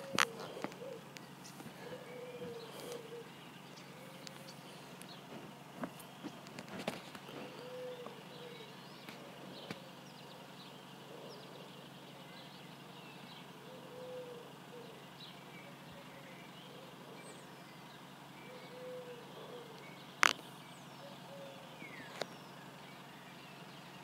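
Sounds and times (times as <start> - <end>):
pigeon cooing: 0.0 - 5.0, 6.2 - 10.4, 11.0 - 11.8, 13.6 - 17.4, 18.4 - 19.9, 21.0 - 22.2
small birds chirping: 0.0 - 24.0.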